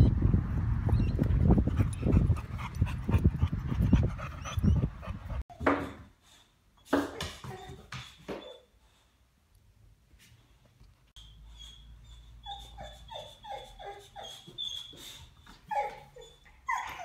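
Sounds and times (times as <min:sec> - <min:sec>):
wind rumbling on microphone: 0:00.0 - 0:05.4.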